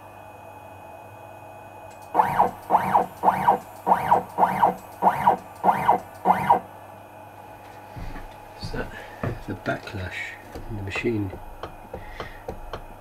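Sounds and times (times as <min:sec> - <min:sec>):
stepper motor whine: 0:02.0 - 0:06.8.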